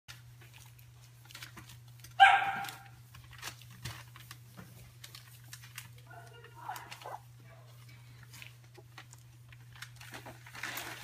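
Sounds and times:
puppy barking: 2.2s - 3.0s, 6.1s - 7.7s.

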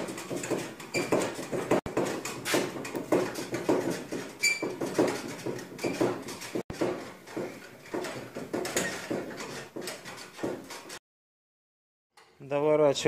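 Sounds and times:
cloth squeaking on car paint: 3.4s - 11.0s.

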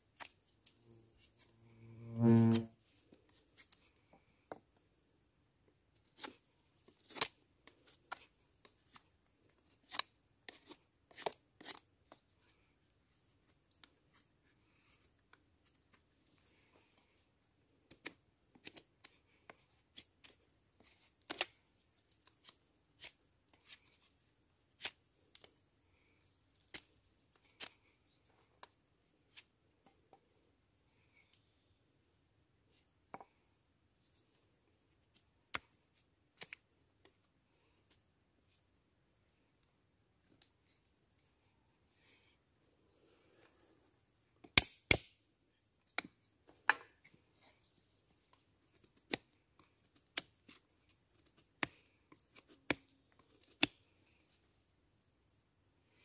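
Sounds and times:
knife carving wood: 0.1s - 4.9s, 5.9s - 16.1s, 17.8s - 30.3s, 44.4s - 45.2s, 48.2s - 54.4s.

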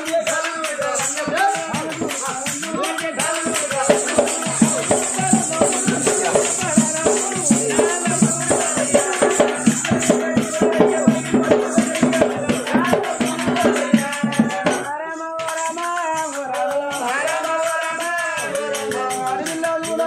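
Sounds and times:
people singing: 0.0s - 20.0s
jingling rattle: 0.3s - 14.8s
barrel drum beating: 0.8s - 14.9s.

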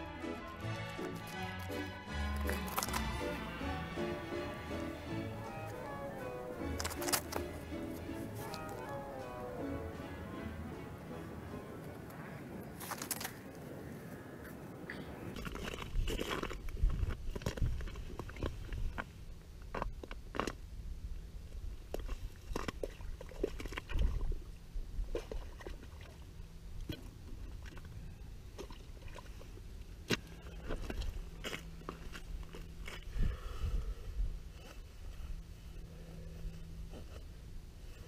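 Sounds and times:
boots crunching on ice: 1.0s - 9.0s
sharp ice clicks: 1.2s - 3.3s, 12.8s - 13.6s, 15.3s - 20.6s.

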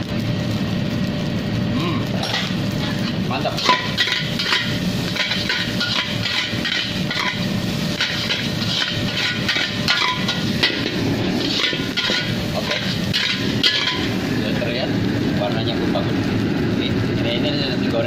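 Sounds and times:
metal spatula scraping a wok: 2.2s - 14.2s
steady rushing noise: 2.3s - 18.0s.

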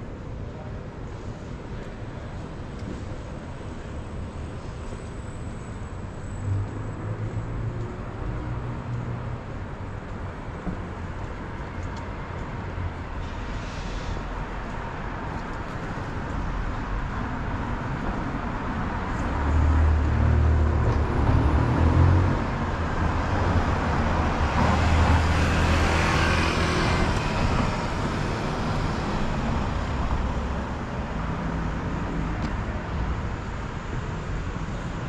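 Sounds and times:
street traffic: 0.0s - 35.0s
vehicle passing close: 19.4s - 30.7s.

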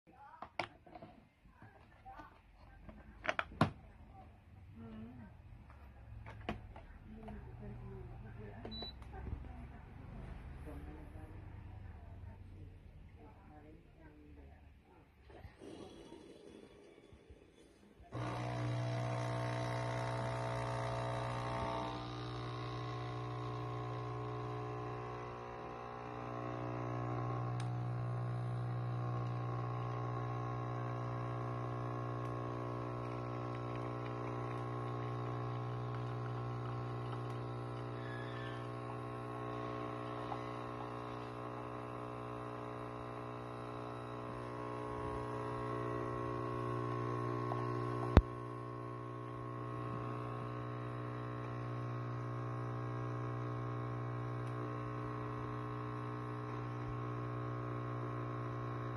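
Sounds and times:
coffee machine pump humming: 0.2s - 14.5s, 18.0s - 58.9s
stream pouring into mug: 18.2s - 58.2s.

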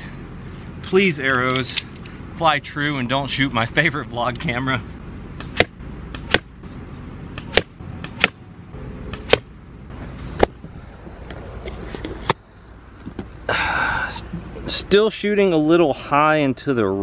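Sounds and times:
arrows striking target: 5.4s - 6.5s, 7.4s - 8.4s, 9.1s - 10.7s.

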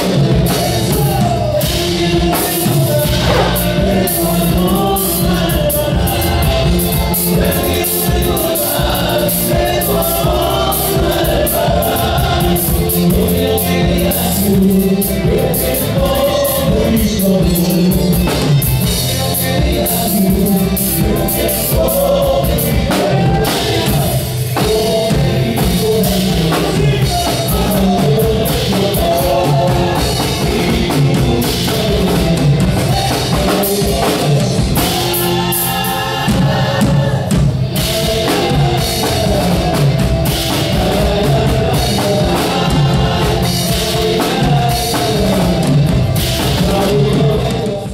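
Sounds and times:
bass: 0.0s - 47.9s
drum kit beat: 0.0s - 47.9s
men singing: 0.0s - 47.9s
strummed acoustic guitars: 2.1s - 11.2s.

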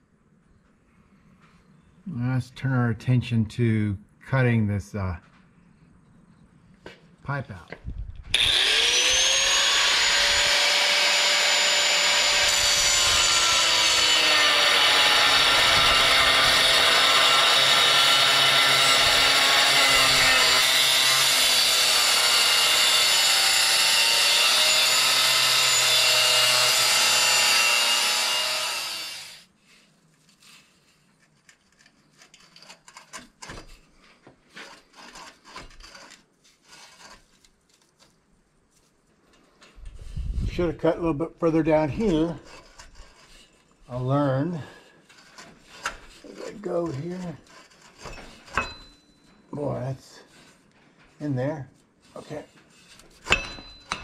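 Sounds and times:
angle grinder cutting metal: 8.3s - 29.5s.

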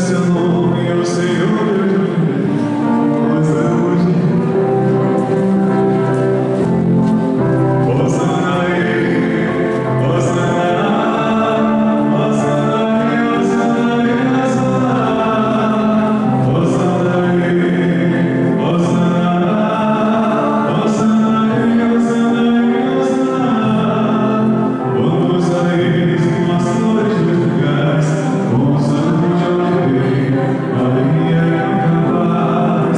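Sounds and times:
group singing a hymn: 7.9s - 32.9s.

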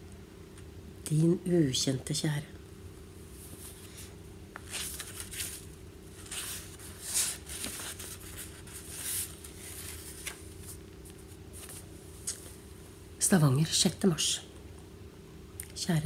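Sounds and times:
low electrical hum: 0.0s - 16.0s
book pages rustling: 3.4s - 12.6s.

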